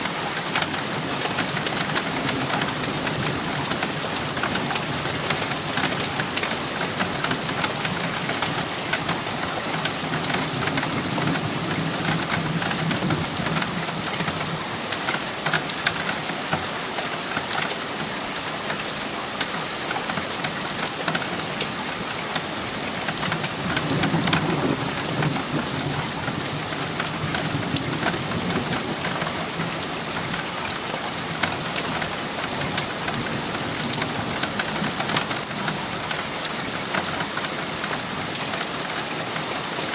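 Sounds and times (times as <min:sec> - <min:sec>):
heavy rain pattering: 0:00.0 - 0:39.9
thunder rumbling: 0:22.8 - 0:30.5.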